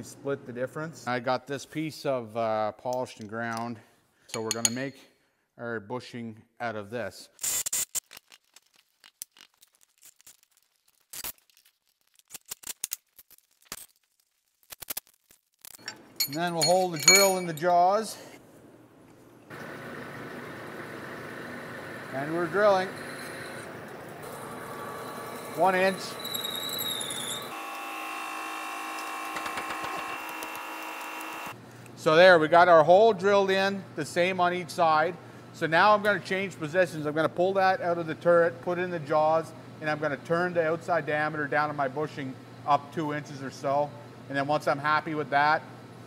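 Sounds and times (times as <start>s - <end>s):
metal tools clinking: 4.3s - 5.0s, 15.7s - 18.4s
lathe machine whine: 19.6s - 31.6s.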